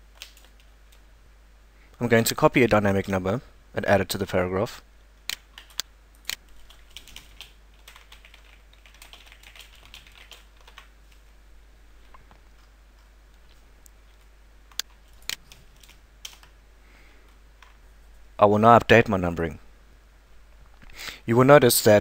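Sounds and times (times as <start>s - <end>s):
typing on keyboard: 0.1s - 0.7s, 5.3s - 5.8s, 6.4s - 10.9s, 14.8s - 16.6s.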